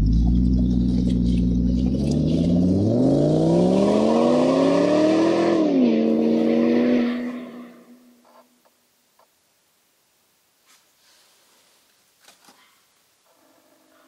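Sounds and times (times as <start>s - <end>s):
engine running and revving: 0.0s - 7.3s.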